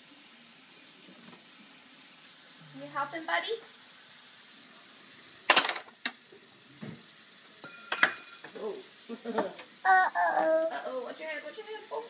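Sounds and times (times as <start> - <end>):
metal cutlery clattering: 5.5 - 5.9, 7.2 - 8.6
small child's voice: 9.8 - 12.0.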